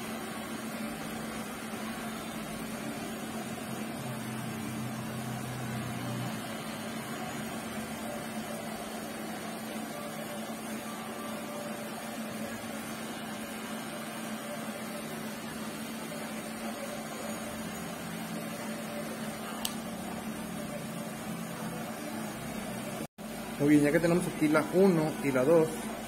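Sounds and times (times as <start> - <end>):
electric hair clipper buzzing: 19.5 - 19.8
short click: 19.6 - 19.8.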